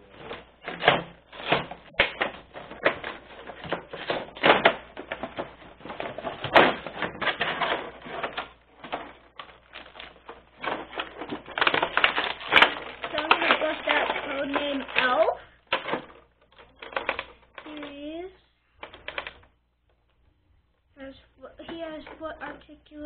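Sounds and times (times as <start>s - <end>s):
cardboard tearing: 0.0s - 15.2s
plastic tray crackling: 0.0s - 18.1s, 18.8s - 19.6s.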